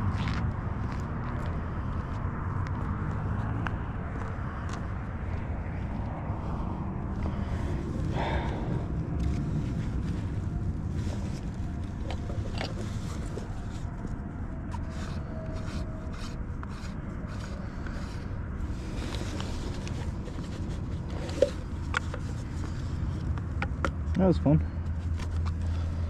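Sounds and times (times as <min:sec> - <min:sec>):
steady low rumble: 0:00.0 - 0:26.0.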